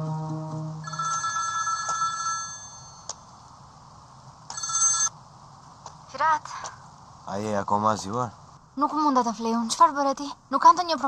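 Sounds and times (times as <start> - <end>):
electronic telephone ringing: 0.8 - 3.0, 4.5 - 5.1.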